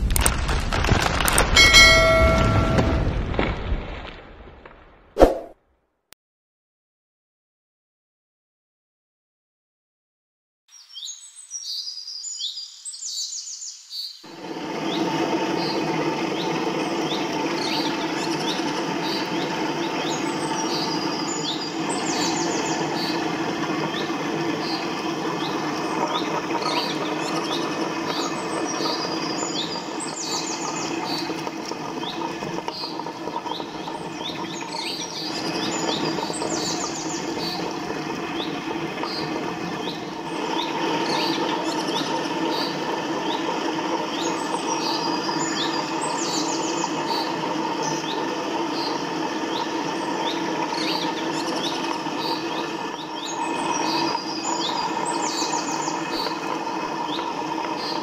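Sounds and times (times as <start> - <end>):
louder hum: 1.6 - 3.3
wet grinder running: 14.3 - 58.0.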